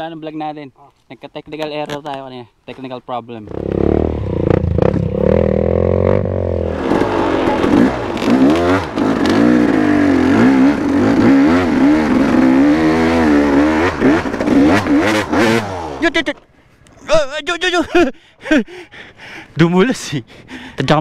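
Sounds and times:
dirt bike engine revving: 0:03.4 - 0:16.5.

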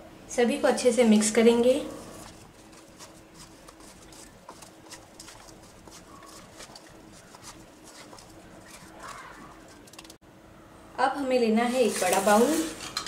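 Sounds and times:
faint steady hum: 0:00.0 - 0:13.0
spatula stirring mango pieces: 0:02.2 - 0:10.1.

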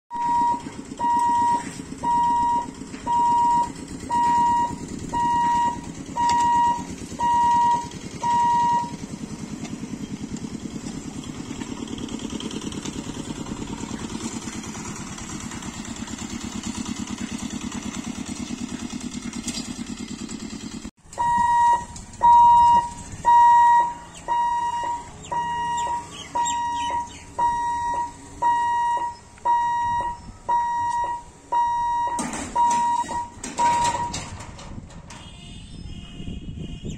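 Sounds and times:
level crossing hooter beeping: 0:00.1 - 0:09.6, 0:20.7 - 0:36.9
small vehicle engine running: 0:00.2 - 0:34.5.

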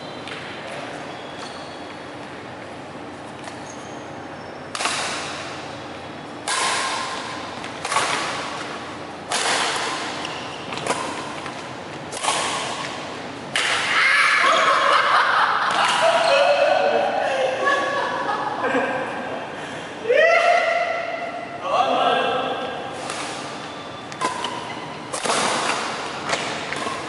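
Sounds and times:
racket hitting shuttlecock: 0:04.7 - 0:05.7, 0:06.4 - 0:14.0, 0:23.0 - 0:27.0
players shouting and laughing: 0:13.8 - 0:21.3.

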